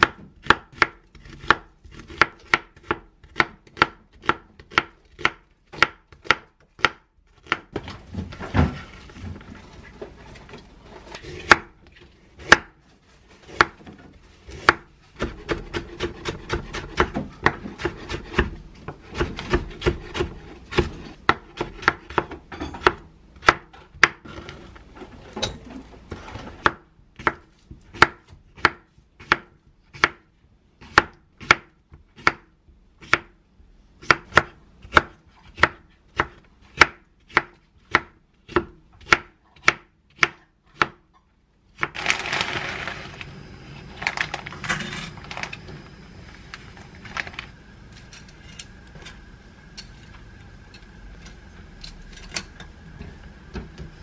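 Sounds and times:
knife chopping on wooden board: 0.0 - 7.7, 11.2 - 11.7, 12.4 - 12.7, 14.5 - 24.2, 26.6 - 30.2.

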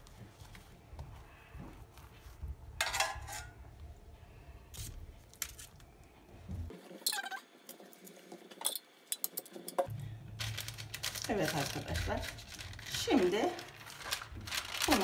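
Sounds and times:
metal spoon scraping metal pan: 2.8 - 3.5.

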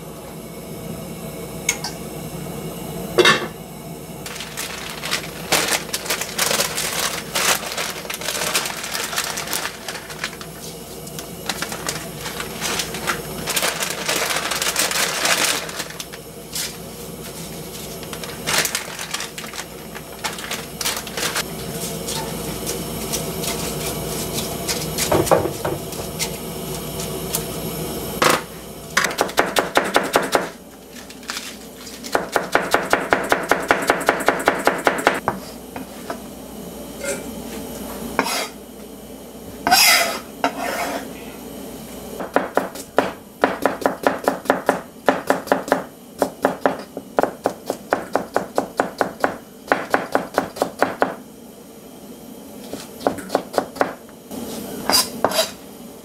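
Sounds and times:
knife chopping on cutting board: 54.9 - 55.5.

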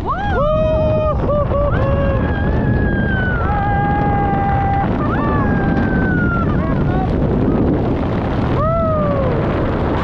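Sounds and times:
person whooping and yelling: 0.0 - 7.1
wind rushing across microphone: 0.0 - 10.0.

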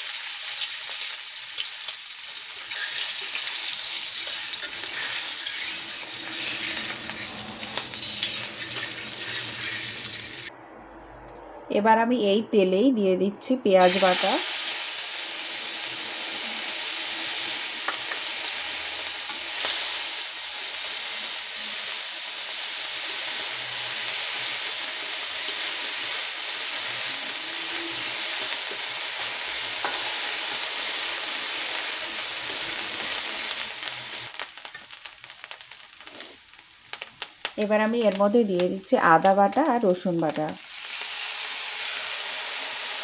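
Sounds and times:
paste sizzling in hot oil: 0.0 - 10.5, 13.8 - 43.0
metal spatula scraping pan: 2.7 - 10.5.

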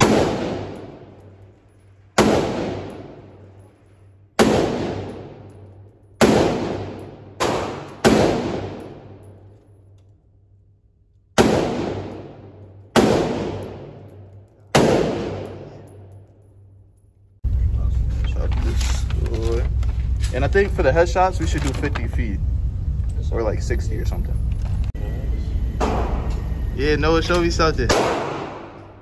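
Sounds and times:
pistol shots echoing: 0.0 - 1.2, 2.2 - 3.2, 4.4 - 5.6, 6.2 - 9.3, 11.4 - 16.0, 27.9 - 29.0.

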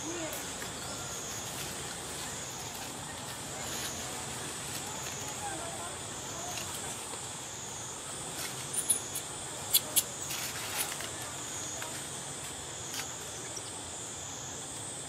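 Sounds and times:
high-pitched insect drone: 0.0 - 6.8.

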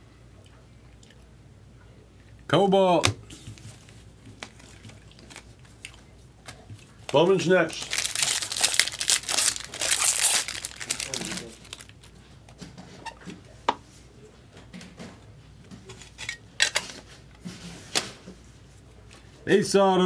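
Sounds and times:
foil pack tearing and crinkling: 4.4 - 5.6, 7.7 - 12.1.

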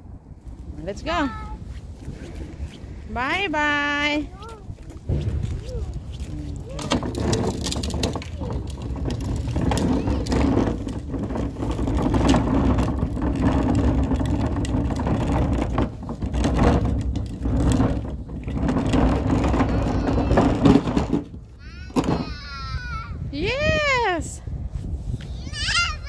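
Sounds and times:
garbage truck engine rumbling: 2.2 - 22.4.

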